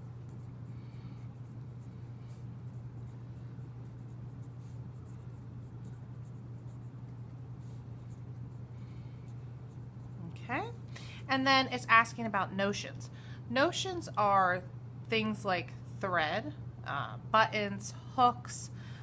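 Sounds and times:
marker pen scratching on paper: 0.0 - 10.4
steady low hum: 0.0 - 19.0.

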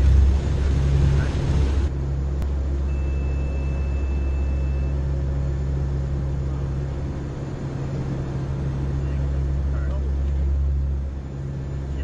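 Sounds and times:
turboprop engines droning: 0.0 - 12.0
thin high steady tone: 2.8 - 5.1.

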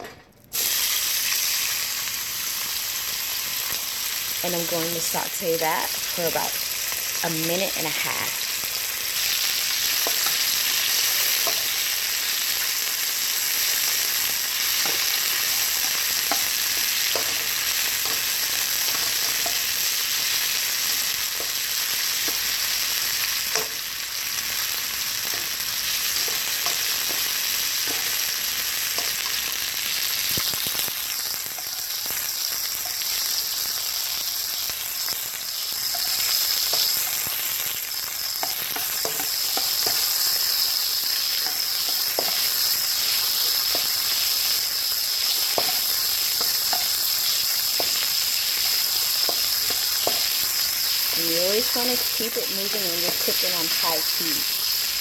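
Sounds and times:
chicken sizzling in hot oil: 0.5 - 55.0
spatula tapping and scraping wok: 9.9 - 12.0, 13.7 - 19.8, 23.4 - 23.9, 25.2 - 29.4, 38.2 - 44.4, 45.2 - 51.8.

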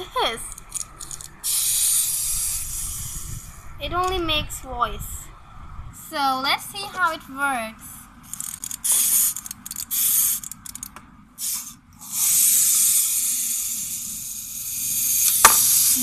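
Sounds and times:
toy mechanism whirring: 0.0 - 4.2, 8.2 - 16.0
wind-up knob clicking: 8.3 - 11.0.

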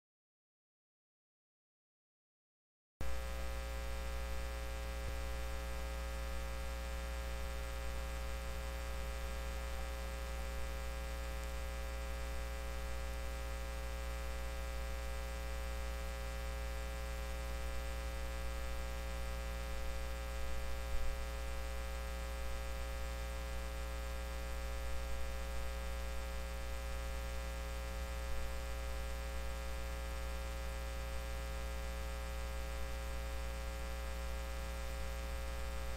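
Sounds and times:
steady electrical hum: 3.0 - 35.9.

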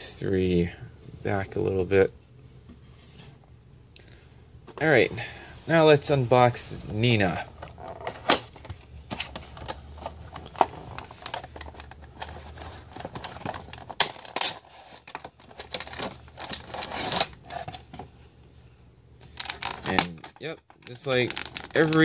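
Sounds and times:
plastic crinkling and rustling: 7.0 - 18.1, 19.2 - 22.0.

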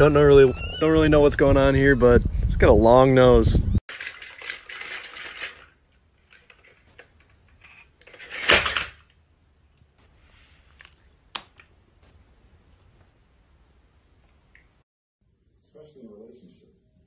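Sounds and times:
toy clicking and clattering: 3.9 - 7.3.

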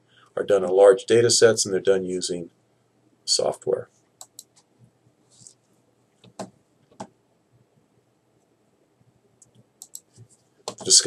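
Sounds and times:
faint computer mouse clicks: 4.2 - 4.6, 9.4 - 10.1.

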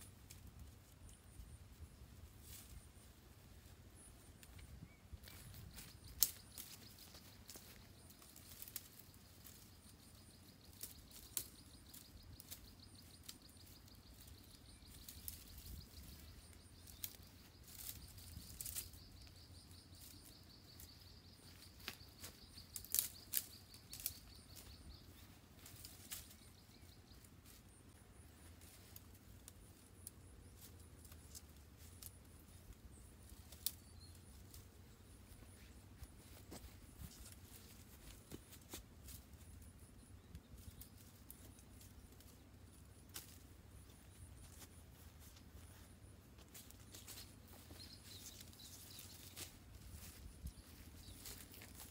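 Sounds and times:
twigs clicking and snapping: 4.4 - 27.0, 28.6 - 39.2, 40.3 - 43.5, 46.5 - 51.9
leafy branches rustling: 4.4 - 29.8, 40.5 - 51.9.

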